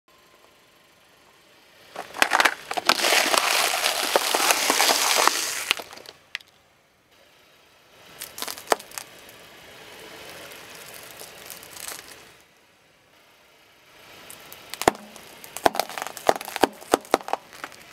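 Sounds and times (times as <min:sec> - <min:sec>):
tyre crunching cardboard tubes: 0:02.0 - 0:06.4, 0:08.2 - 0:09.1, 0:10.4 - 0:12.2, 0:14.3 - 0:17.9
lollipops cracking under tyre: 0:02.0 - 0:06.5, 0:08.2 - 0:09.3, 0:10.2 - 0:12.3, 0:14.3 - 0:17.9.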